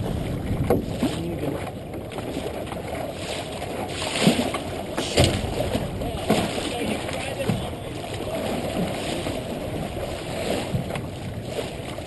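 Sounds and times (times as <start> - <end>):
water rushing along boat hull: 0.0 - 12.0
water splash: 0.0 - 12.0
wind buffeting microphone: 0.0 - 12.0.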